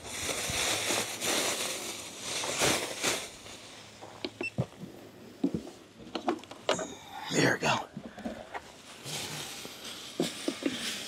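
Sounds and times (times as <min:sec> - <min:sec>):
camping gear rustling: 0:00.0 - 0:06.9, 0:08.0 - 0:11.0.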